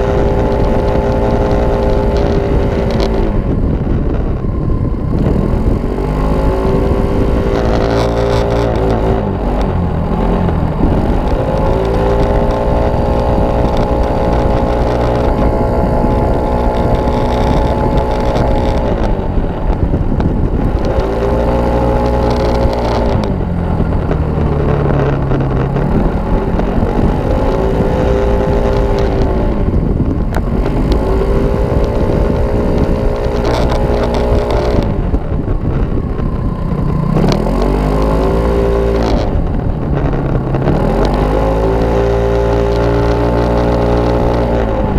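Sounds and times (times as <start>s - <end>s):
scooter engine revving high: 0.0s - 44.9s
wind and road rush: 0.0s - 44.9s.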